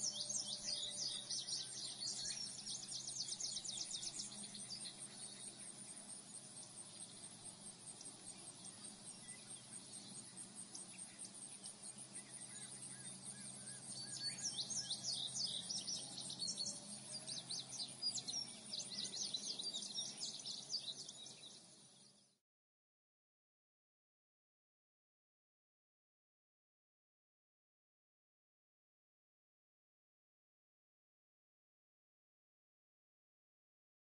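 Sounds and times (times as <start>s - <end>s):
birds chirping: 0.0s - 22.3s.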